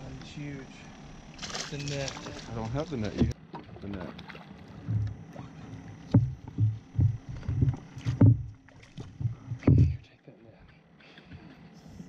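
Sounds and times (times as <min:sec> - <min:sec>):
dull thumps on boat: 0:06.0 - 0:10.0.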